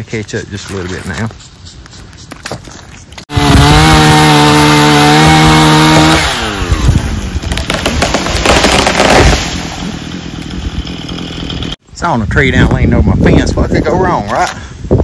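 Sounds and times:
chainsaw cutting: 0:03.3 - 0:11.8.

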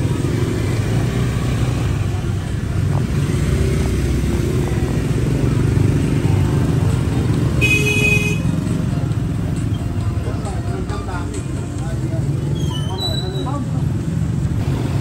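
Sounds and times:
motorbike engines rumbling: 0:00.0 - 0:15.0.

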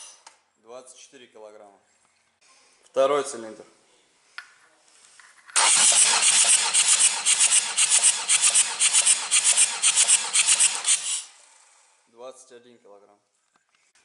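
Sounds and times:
starter motor cranking diesel engine: 0:05.6 - 0:11.9.

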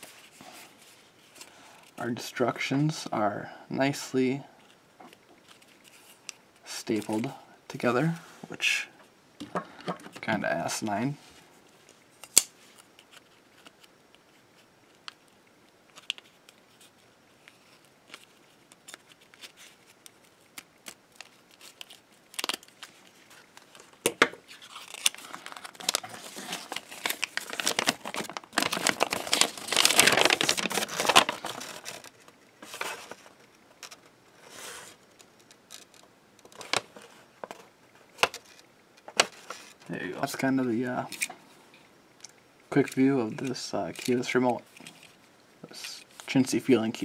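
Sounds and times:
paper crinkling and rustling: 0:12.6 - 0:41.4, 0:42.7 - 0:47.0.

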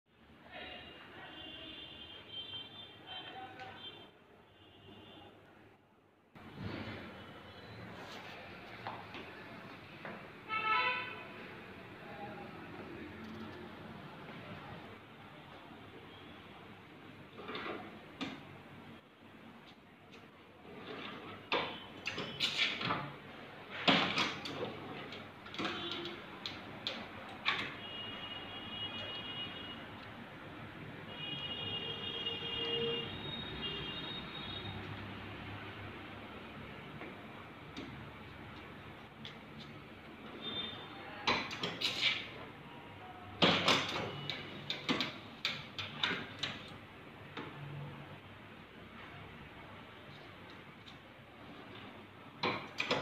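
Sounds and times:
metal holder sliding scrapes: 0:17.3 - 0:18.0, 0:20.6 - 0:22.9.

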